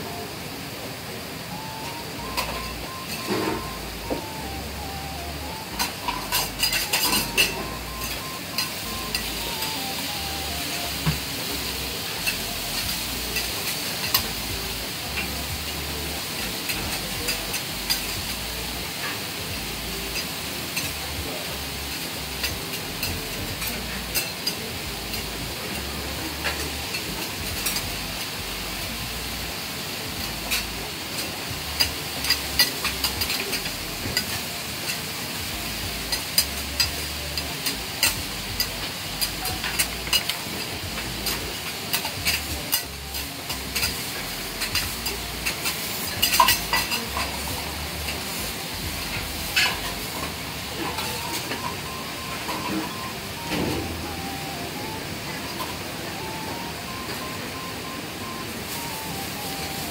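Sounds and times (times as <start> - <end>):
food sizzling on a griddle: 0.0 - 59.9
metal spatulas clicking and scraping: 5.8 - 9.3, 44.6 - 47.2.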